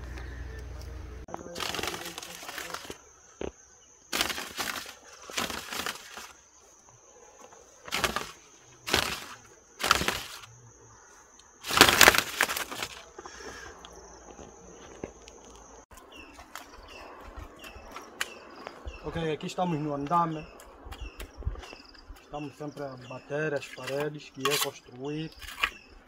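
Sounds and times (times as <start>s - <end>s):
dry palm fronds rustling: 1.3s - 13.7s, 15.9s - 18.4s.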